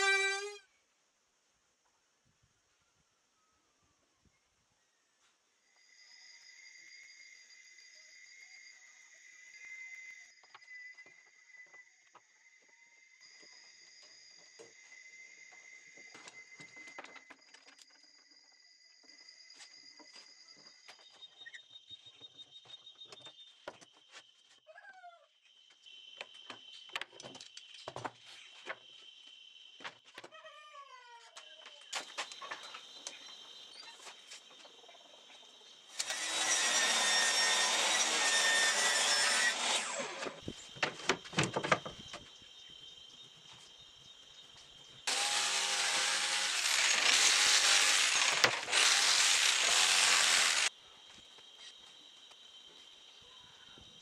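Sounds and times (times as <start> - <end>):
power tool running: 35.9 - 40.4, 45.1 - 50.7
electric sander on a board: 36.0 - 40.4, 45.1 - 50.7.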